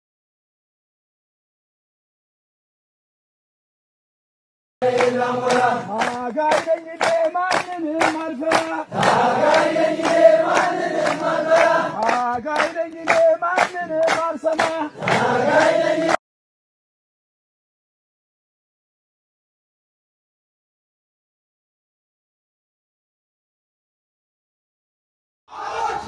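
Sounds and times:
fast hand-clapping: 4.8s - 16.2s
men singing a chant: 4.8s - 16.2s.

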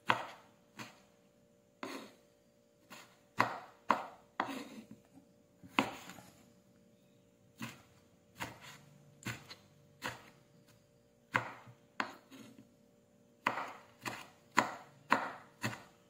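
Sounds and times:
knife slicing tomatoes: 0.0s - 1.1s, 1.8s - 2.2s, 2.8s - 5.0s, 5.6s - 6.4s, 7.6s - 10.4s, 11.3s - 12.7s, 13.4s - 16.0s.

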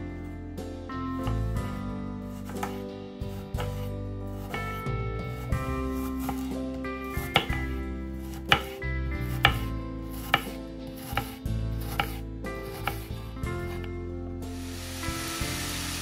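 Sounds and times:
soft background music: 0.0s - 16.0s
knife chopping on cutting board: 2.3s - 13.9s.

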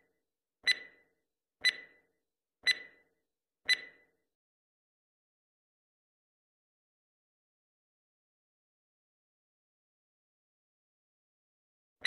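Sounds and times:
timer ticking with brief ring: 0.6s - 4.2s.

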